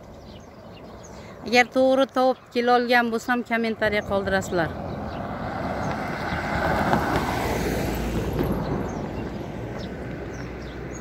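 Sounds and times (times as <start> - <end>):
car driving past: 4.0 - 11.0.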